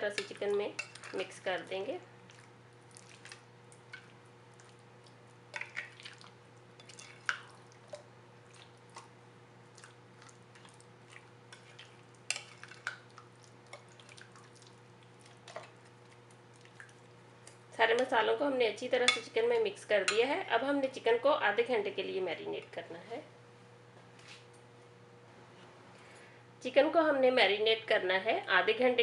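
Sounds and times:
wet squelches of stirring: 0:00.0 - 0:21.0
faint steady hum: 0:00.0 - 0:29.0.

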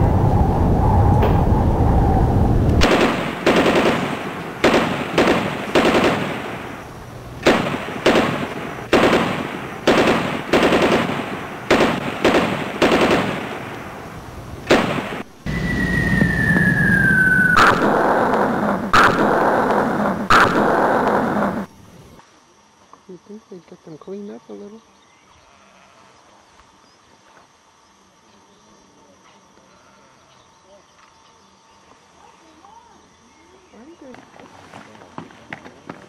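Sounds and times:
low rumble: 0:00.0 - 0:04.7
sharp explosion blast: 0:00.0 - 0:06.8, 0:07.4 - 0:13.8, 0:14.6 - 0:21.7
shell whistling down: 0:01.1 - 0:02.0, 0:15.4 - 0:21.7
machine-gun fire: 0:02.8 - 0:14.0, 0:14.6 - 0:15.3, 0:17.6 - 0:21.7
rifle fire: 0:02.8 - 0:15.3, 0:17.0 - 0:21.7.

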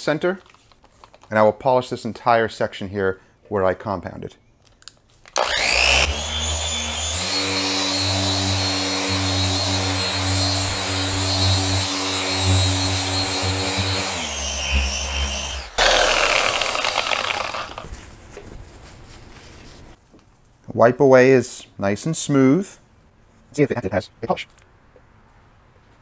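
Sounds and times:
car polisher running: 0:05.4 - 0:17.8.

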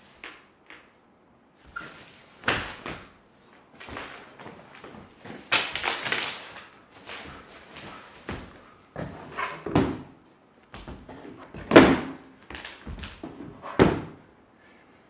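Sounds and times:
kicking a padded bag: 0:02.4 - 0:03.2
thumps on wooden stage floor: 0:10.8 - 0:14.2.

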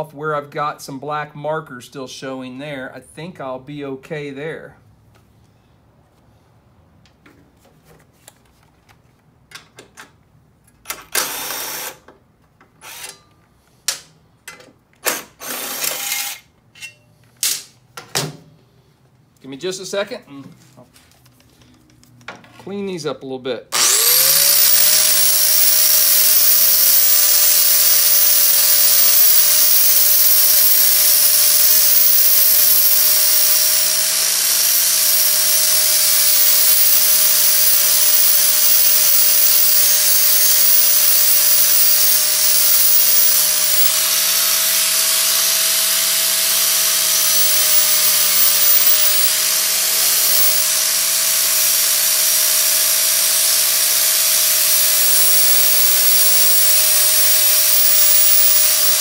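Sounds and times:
power tool grinding metal: 0:23.8 - 0:59.0.

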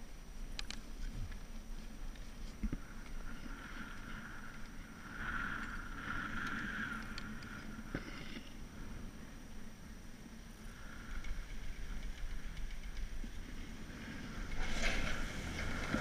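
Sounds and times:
chairlift rope and wheels whirring: 0:00.0 - 0:16.0
click: 0:00.6 - 0:01.4.

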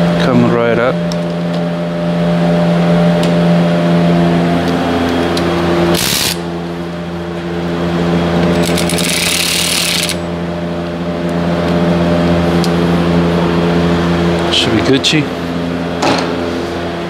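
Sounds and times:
low machine hum: 0:00.0 - 0:17.0
electric ratchet whirring: 0:05.1 - 0:06.5, 0:08.5 - 0:10.3.

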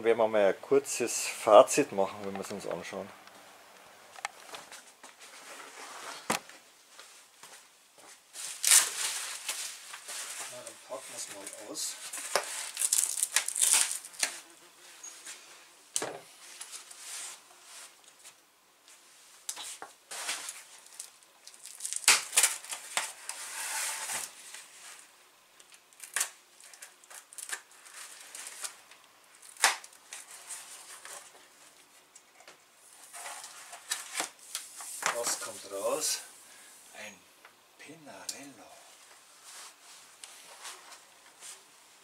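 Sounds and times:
packing material rustling: 0:08.4 - 0:14.4, 0:19.5 - 0:25.1, 0:25.7 - 0:31.8.

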